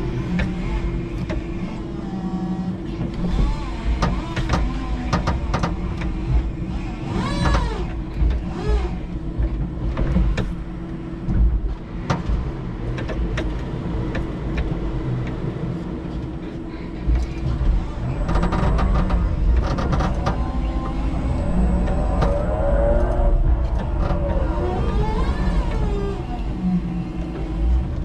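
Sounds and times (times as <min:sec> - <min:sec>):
electric forklift motor hum: 0:13.8 - 0:28.0
forklift whine: 0:16.4 - 0:28.0.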